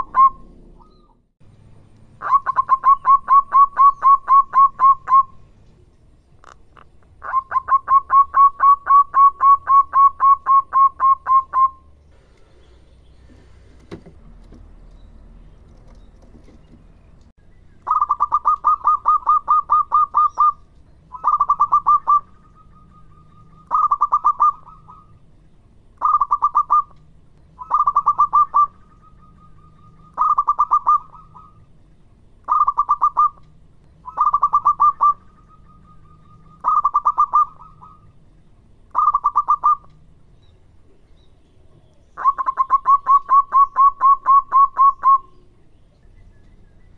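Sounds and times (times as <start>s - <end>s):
dove cooing: 0.0s - 1.1s, 2.2s - 5.4s, 7.2s - 11.8s, 17.8s - 25.2s, 26.0s - 27.0s, 27.6s - 31.6s, 32.5s - 33.4s, 34.0s - 38.1s, 38.9s - 39.9s, 42.2s - 45.6s.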